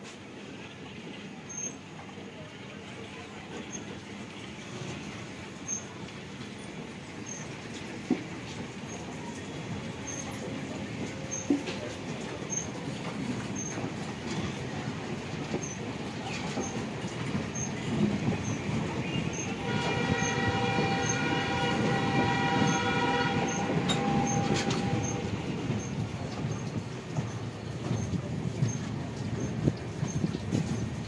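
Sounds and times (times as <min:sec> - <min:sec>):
train rumbling past with wheel clatter: 0:00.0 - 0:31.0
train horn: 0:19.2 - 0:25.5.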